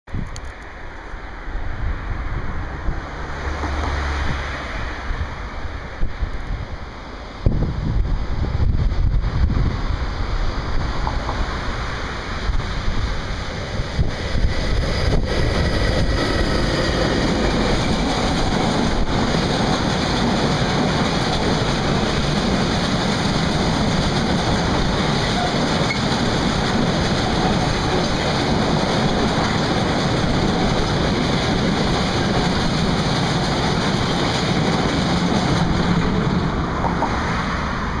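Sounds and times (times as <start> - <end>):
freight train rumbling on track: 0.1 - 38.0
wind buffeting microphone: 4.2 - 37.2
train wagon clunks: 15.4 - 37.2.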